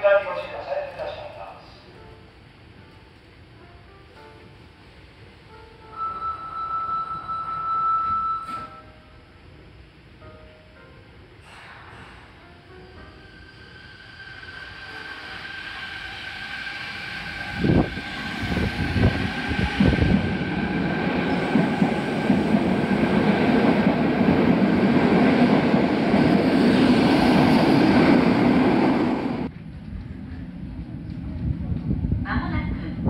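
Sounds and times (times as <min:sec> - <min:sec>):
train wheels rumbling on rail: 0:14.1 - 0:33.0.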